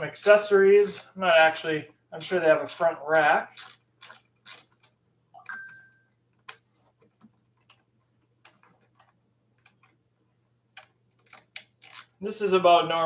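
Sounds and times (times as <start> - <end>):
metallic ring: 5.5 - 6.1.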